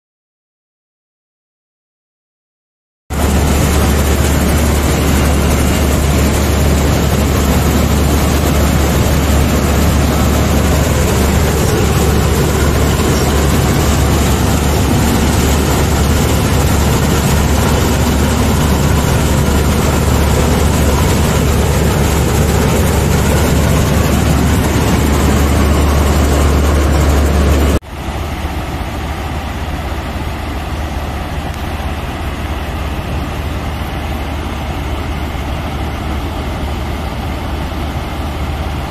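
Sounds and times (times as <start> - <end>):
combine harvester engine droning: 3.1 - 38.9
grain auger running: 3.2 - 28.8.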